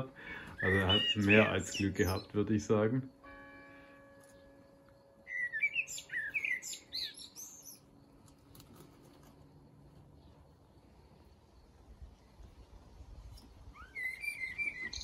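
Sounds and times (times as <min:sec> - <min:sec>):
kestrel shrill calls: 0:00.3 - 0:02.4, 0:05.3 - 0:07.9, 0:13.6 - 0:15.0.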